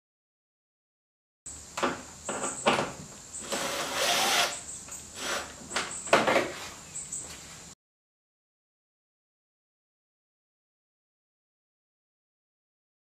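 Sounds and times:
cordless drill driving bolts: 3.4 - 5.6.

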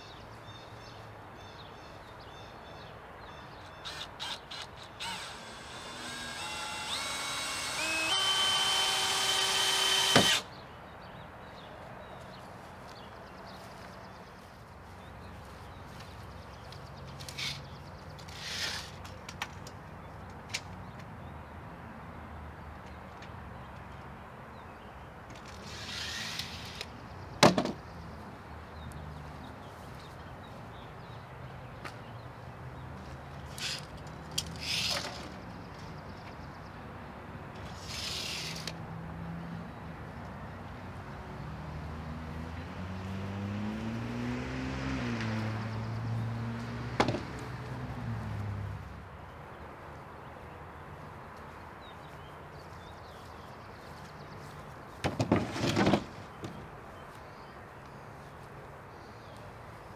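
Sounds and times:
tape measure pulling and retracting: 3.7 - 10.5, 17.2 - 19.4, 25.4 - 27.0, 33.5 - 35.4, 37.6 - 38.8.

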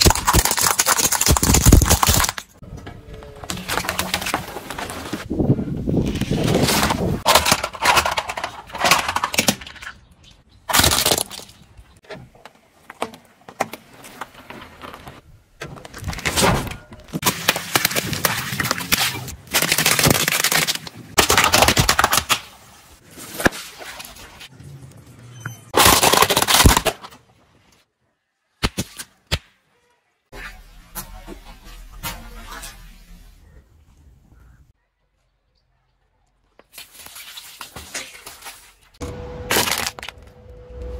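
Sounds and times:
objects crushed under car tyre: 25.7 - 27.1, 39.4 - 40.2.

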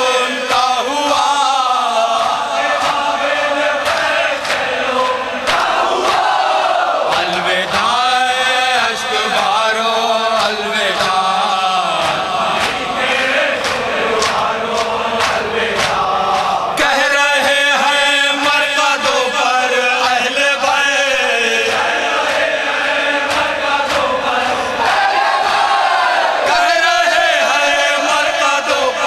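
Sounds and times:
man singing into microphone: 0.0 - 5.5, 7.0 - 24.9, 26.4 - 29.0
crowd of men chanting: 0.0 - 29.0
hands slapping on chests: 3.8 - 4.7, 5.4 - 6.2, 12.0 - 12.9, 13.6 - 16.6, 23.2 - 24.2.

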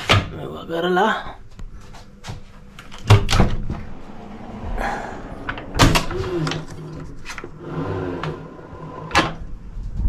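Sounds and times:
skylight creaking: 2.1 - 9.8.

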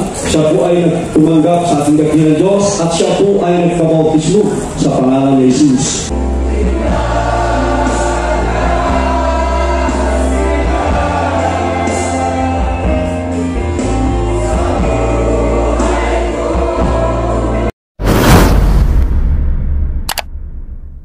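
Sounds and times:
choir singing a hymn: 6.1 - 17.7
low bass accompaniment: 12.5 - 21.0.

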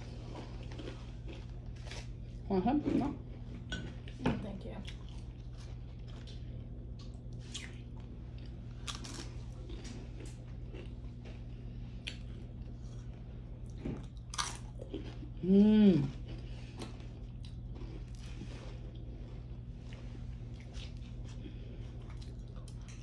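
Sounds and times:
chewing tortilla chips: 0.0 - 2.5, 3.2 - 23.0
person humming: 15.4 - 16.1.

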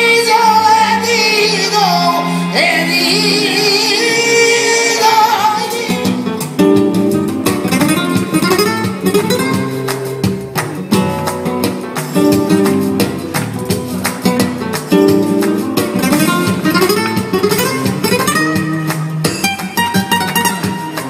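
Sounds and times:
flamenco acoustic guitar: 0.0 - 21.0
sharp percussive strikes: 6.0 - 21.0.

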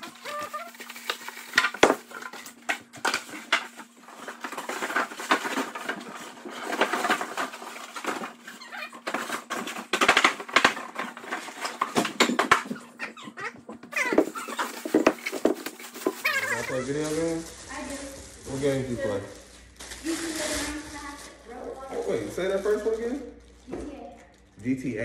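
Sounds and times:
styrofoam knocking and squeaking: 0.0 - 17.9
plastic wrapping rustling: 0.0 - 25.0.

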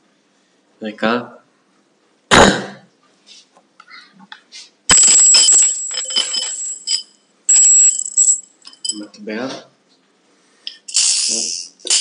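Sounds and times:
coin rattling in a glass jar: 4.9 - 9.1, 10.8 - 12.0.

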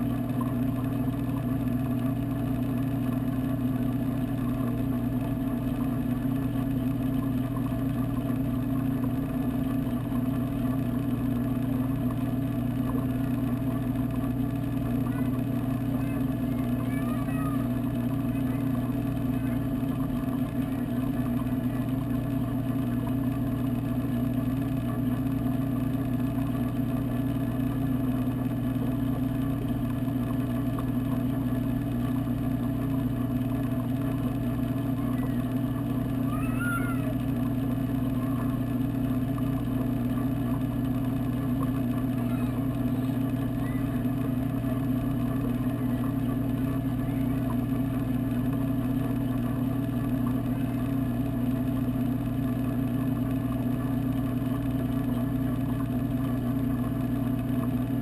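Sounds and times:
aquarium pumps humming: 0.0 - 58.0.

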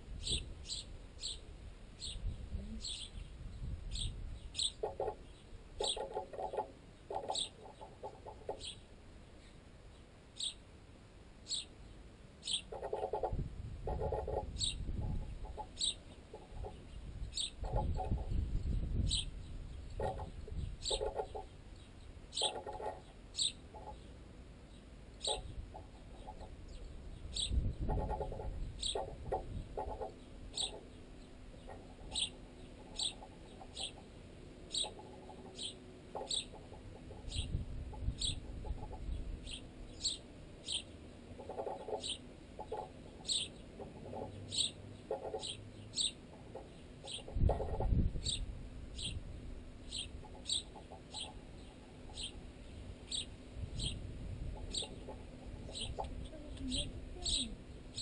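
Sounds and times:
sparrows chirping: 0.0 - 10.7, 11.4 - 58.0
birds pecking knocks: 4.6 - 8.8, 12.6 - 18.6, 19.9 - 21.6, 22.3 - 24.1, 25.2 - 39.5, 40.2 - 48.2, 49.8 - 52.6, 54.5 - 56.9.

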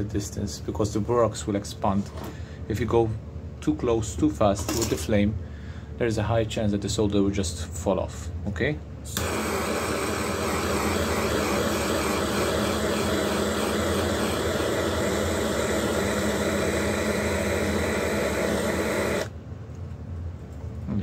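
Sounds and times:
gas torch hissing: 9.1 - 19.3.

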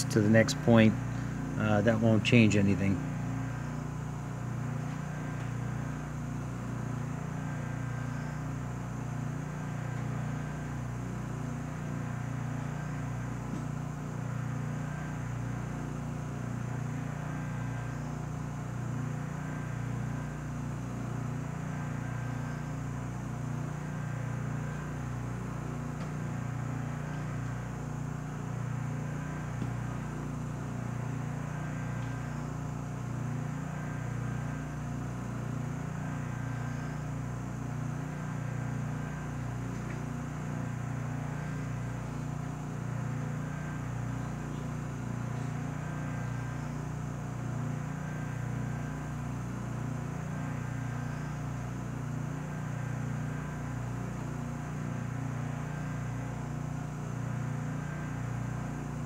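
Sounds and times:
low machine hum: 0.0 - 59.0.

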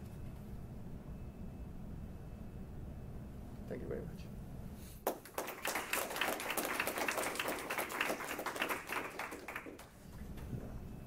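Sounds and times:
audience applauding: 5.1 - 10.0.

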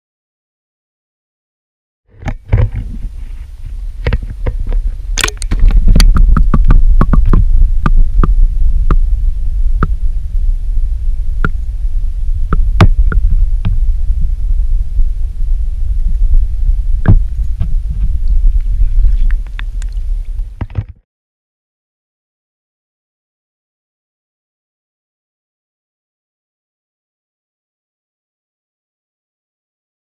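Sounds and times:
wind buffeting microphone: 2.2 - 21.0
sharp clicks and knocks: 4.0 - 9.0, 20.6 - 21.0.

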